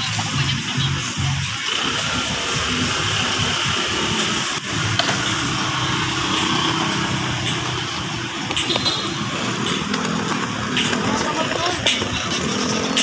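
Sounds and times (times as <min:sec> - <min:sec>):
cars passing: 0:00.0 - 0:13.0
motorcycles passing: 0:00.0 - 0:13.0.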